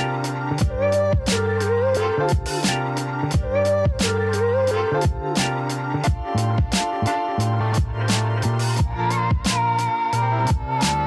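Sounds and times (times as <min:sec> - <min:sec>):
steady drum beat: 0:02.3 - 0:04.0, 0:07.8 - 0:09.9.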